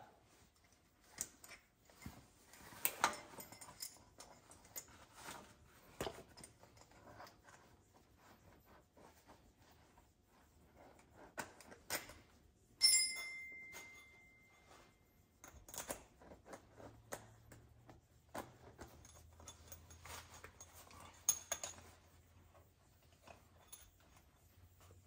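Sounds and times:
metal tools clicking and clinking: 0.6s - 5.1s, 11.6s - 17.7s, 18.3s - 22.0s
sharp ringing metallic clink: 12.8s - 14.7s.

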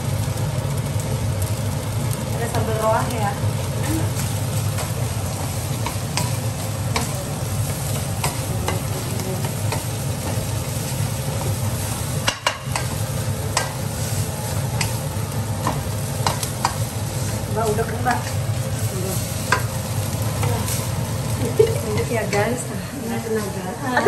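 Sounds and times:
meat sizzling in a wok: 0.0s - 24.0s
spatula tapping pan: 4.2s - 10.5s, 12.2s - 13.9s, 14.7s - 16.9s.

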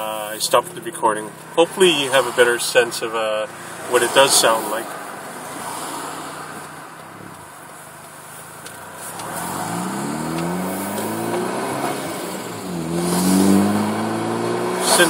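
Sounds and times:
car exhaust accelerating: 0.0s - 15.0s.

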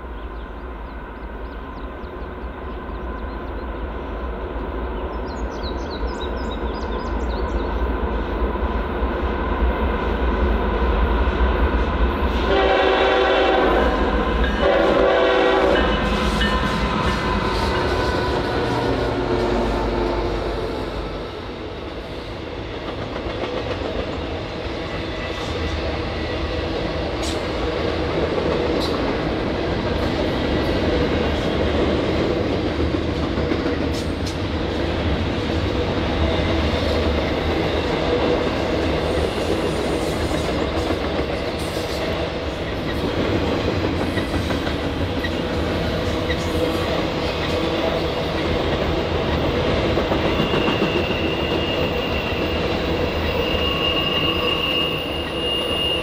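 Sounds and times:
freight train rumbling past: 0.0s - 56.0s
high wheel squeal: 50.3s - 56.0s.

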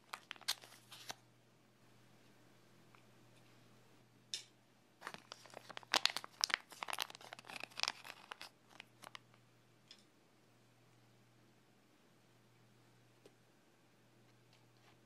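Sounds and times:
plastic packet crinkling: 0.0s - 1.2s, 5.0s - 9.3s.

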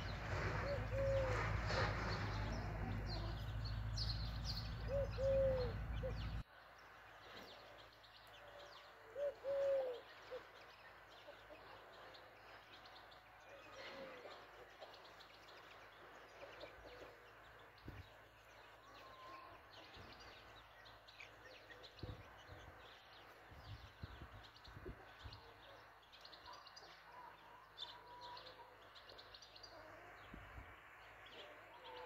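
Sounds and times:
chicks peeping: 0.0s - 6.4s, 10.5s - 32.0s
hen cooing: 4.8s - 6.2s, 9.2s - 10.0s.

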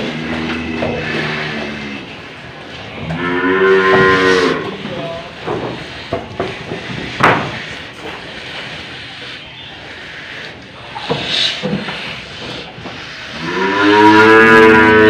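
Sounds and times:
cow mooing: 0.0s - 2.1s, 3.0s - 4.8s, 13.4s - 15.0s
sharp knocks: 5.5s - 7.6s.

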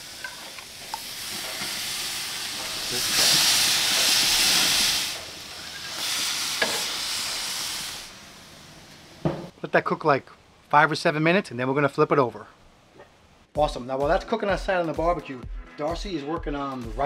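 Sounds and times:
fish sizzling on a grill: 0.0s - 9.2s.

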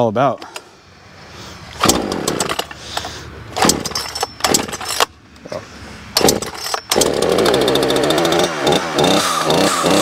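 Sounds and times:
chainsaw pull-starter cord whirring: 1.8s - 5.1s, 6.2s - 10.0s.

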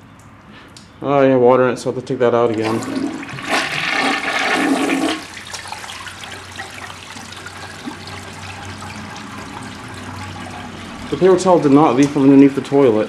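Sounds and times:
toilet flushing: 2.5s - 13.0s.

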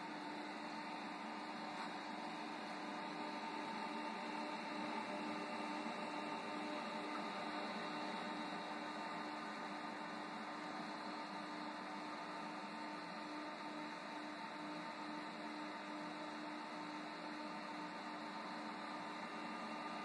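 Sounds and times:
heat pump mechanical hum: 0.0s - 20.0s.

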